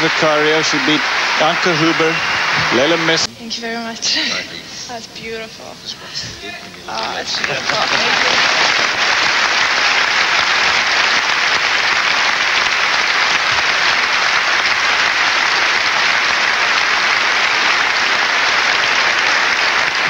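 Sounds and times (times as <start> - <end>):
large crowd applauding: 0.0 - 3.3, 6.9 - 20.0.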